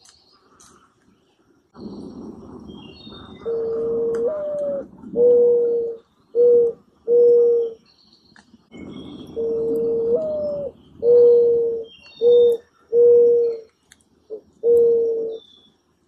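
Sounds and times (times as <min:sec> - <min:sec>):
small birds chirping: 0:00.0 - 0:16.0
dove cooing: 0:01.8 - 0:07.8, 0:08.7 - 0:13.7, 0:14.3 - 0:15.5.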